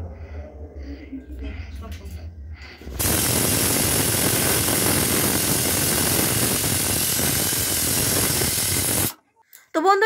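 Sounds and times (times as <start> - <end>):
pressure cooker whistling steam: 3.0 - 9.2.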